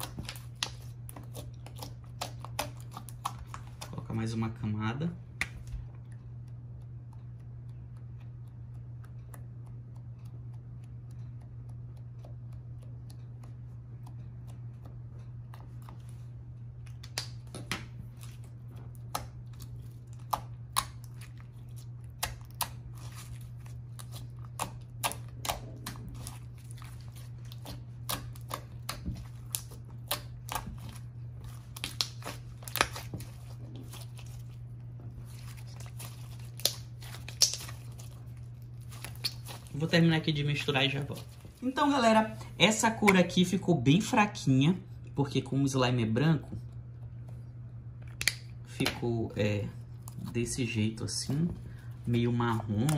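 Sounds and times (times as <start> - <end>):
steady low hum: 0.0 - 52.9
wet clicks and pops of slime: 36.6 - 37.9, 48.1 - 49.0.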